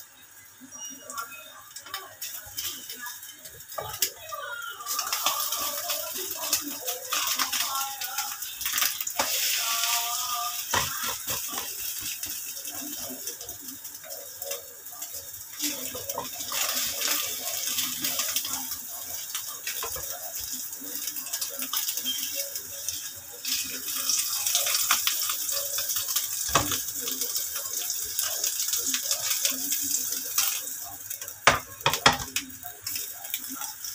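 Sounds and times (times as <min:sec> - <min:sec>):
omelette sizzling in oil: 0:00.0 - 0:33.9
spatula scraping and tapping pan: 0:10.7 - 0:12.2, 0:31.4 - 0:32.4.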